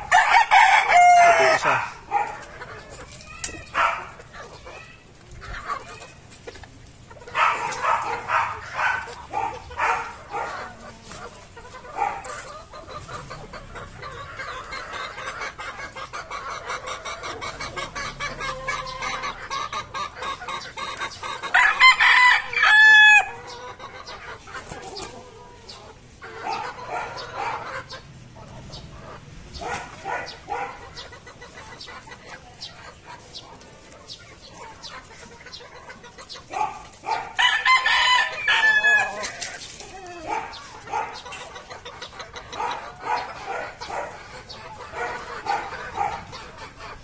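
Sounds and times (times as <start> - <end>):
roosters clucking: 0.0 - 47.0
rooster crowing: 0.1 - 1.9, 21.5 - 23.4, 37.4 - 39.2.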